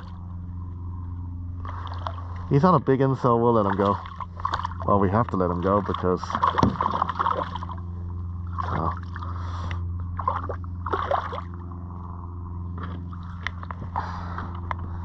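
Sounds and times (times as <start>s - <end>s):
steady low hum: 0.0s - 15.0s
water splashing: 1.6s - 7.8s, 10.2s - 11.6s.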